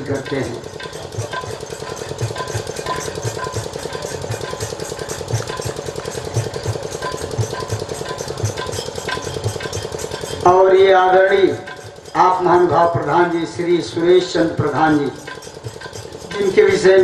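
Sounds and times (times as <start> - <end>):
dholak drumming: 0.0 - 17.0
small hand cymbals: 0.0 - 17.0.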